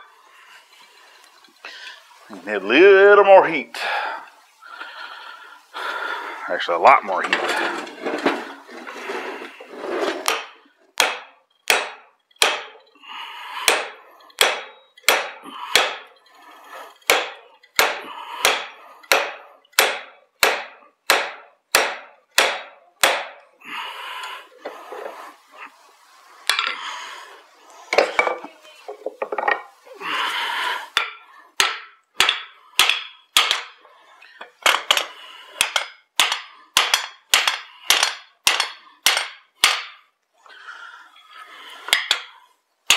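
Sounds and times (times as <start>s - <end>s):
hammer striking hot steel: 10.2s - 12.8s, 13.6s - 16.2s, 17.0s - 23.4s, 31.0s - 33.8s, 34.7s - 40.1s.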